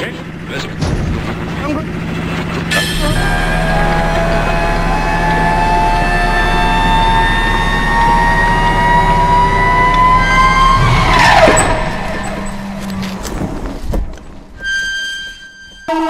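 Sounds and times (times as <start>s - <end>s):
low hum: 0.0s - 16.0s
held synthesizer tones: 2.7s - 13.0s
downward pitch sweep: 2.7s - 13.2s.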